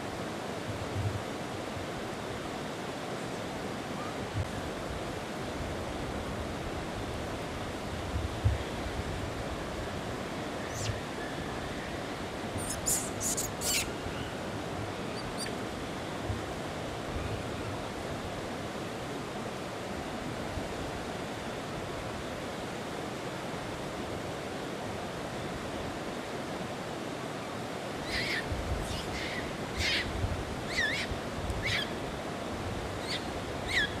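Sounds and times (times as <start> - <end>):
monkey squeaky calls: 10.7 - 11.0, 12.6 - 13.9, 15.2 - 15.6, 28.0 - 30.1, 30.7 - 31.9, 33.0 - 34.0.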